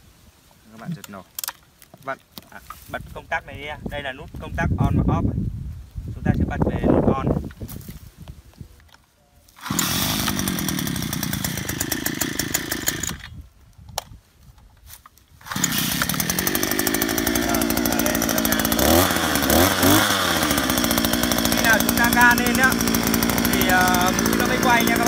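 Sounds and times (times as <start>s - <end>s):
pull-starting small engine: 9.5s - 13.4s, 15.4s - 25.0s
two-stroke engine running: 9.6s - 13.2s, 15.4s - 25.0s.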